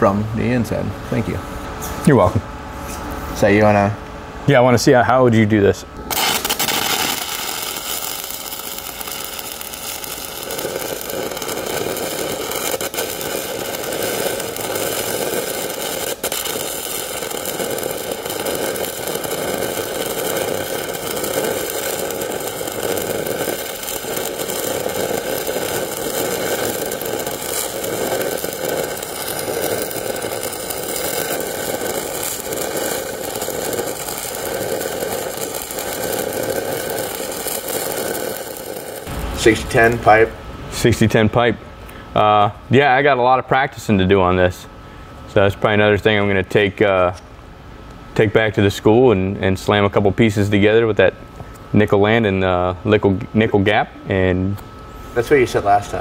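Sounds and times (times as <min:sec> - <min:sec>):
welding arc crackling: 0:06.0 - 0:41.3.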